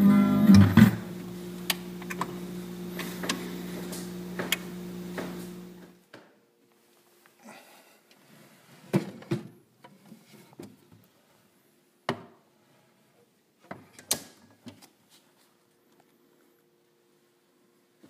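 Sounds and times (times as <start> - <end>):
faint steady hum: 0.0 - 8.8.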